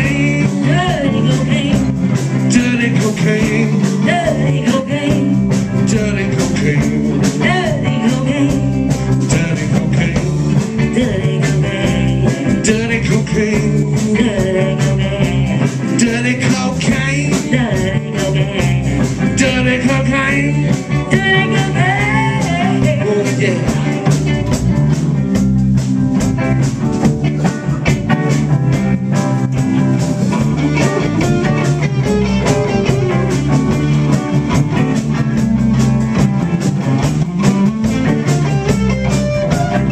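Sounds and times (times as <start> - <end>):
person singing: 0.0 - 24.4, 30.6 - 35.1
bass line: 0.0 - 39.9
drums: 0.0 - 39.9
electric guitars: 0.0 - 39.9.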